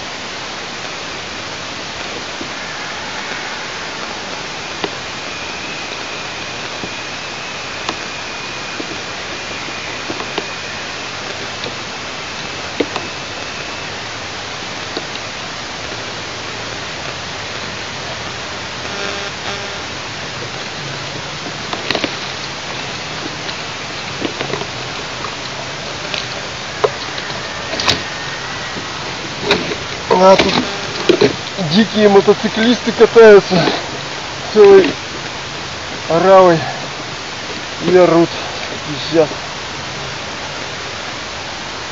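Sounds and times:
steady hiss: 0.0 - 41.9.

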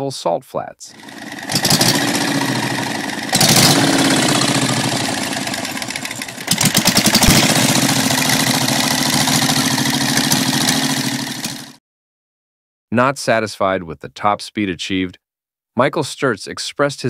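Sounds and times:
motorcycle engine revving: 0.9 - 11.8.

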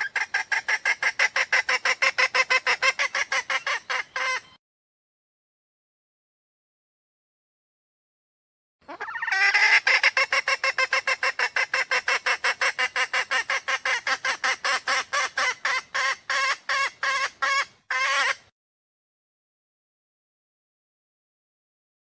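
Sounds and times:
hen calling with short notes: 0.0 - 4.6, 8.9 - 18.4.

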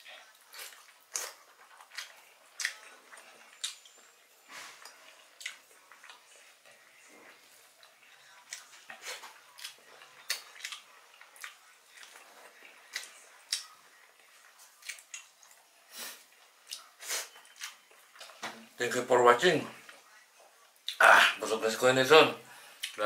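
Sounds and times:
person chewing food: 0.0 - 18.4.

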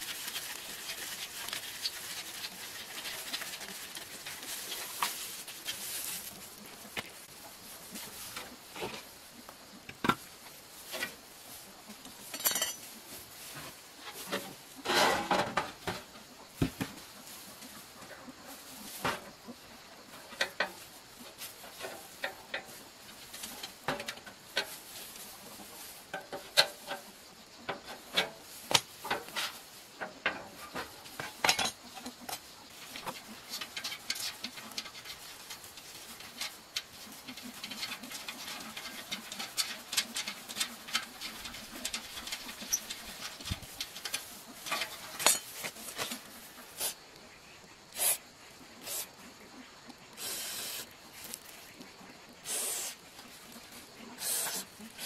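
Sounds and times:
steel parts clinking and clanking: 12.3 - 12.9, 27.7 - 46.2.

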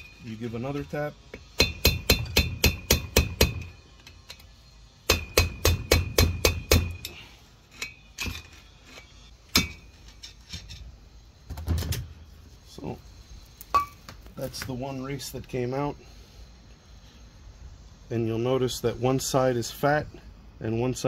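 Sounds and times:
screwdriver hammered against metal: 1.6 - 3.7, 5.1 - 7.2.

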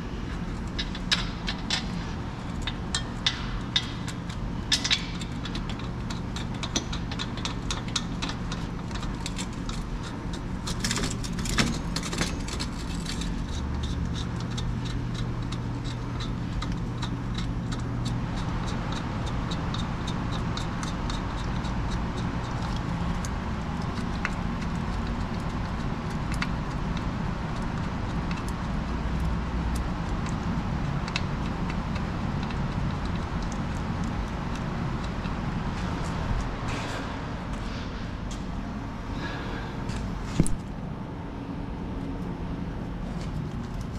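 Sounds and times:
low workshop hum: 0.0 - 43.9
scraping rattle: 0.2 - 25.6.

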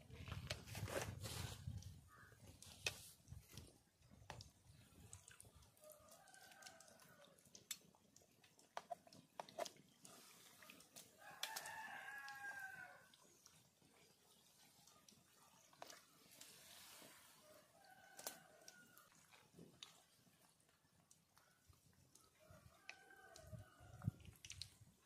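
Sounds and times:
rooster crowing: 11.2 - 13.1.

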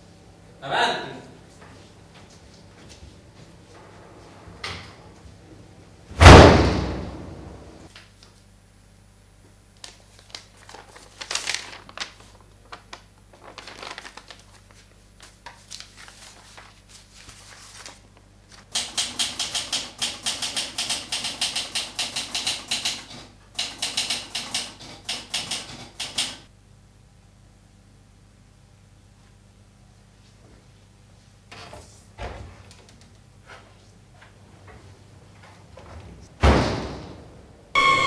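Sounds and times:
paper rustling: 9.8 - 18.7
typewriter keystrokes: 18.8 - 26.5.

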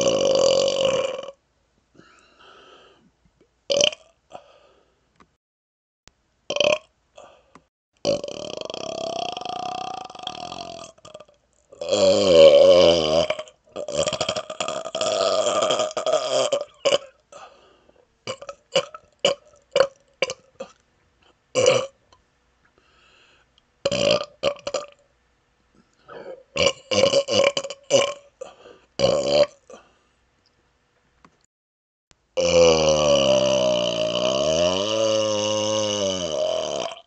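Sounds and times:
man burping: 0.0 - 1.4, 3.7 - 4.4, 6.5 - 7.3, 8.0 - 17.5, 18.3 - 20.8, 21.5 - 22.0, 23.8 - 25.0, 26.1 - 29.8, 32.4 - 37.0.

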